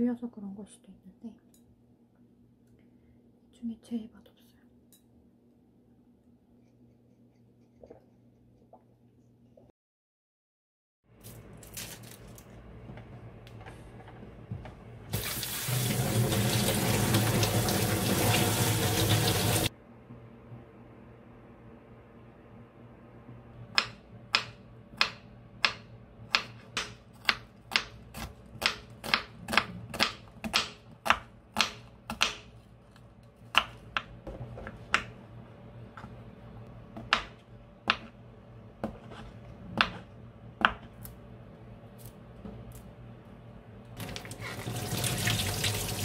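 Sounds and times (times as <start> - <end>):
knife chopping on wooden board: 23.8 - 32.6, 33.4 - 35.2, 37.0 - 38.2, 38.8 - 41.0.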